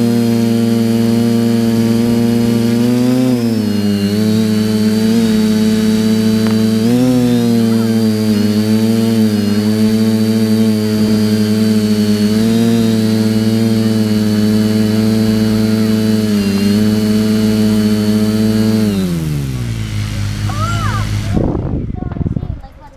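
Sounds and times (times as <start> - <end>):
drone motors whining: 0.0 - 22.9.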